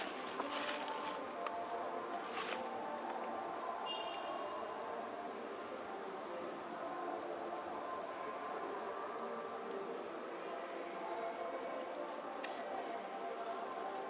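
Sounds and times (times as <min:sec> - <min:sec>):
rustling: 0:00.0 - 0:01.5
insects droning: 0:00.0 - 0:14.0.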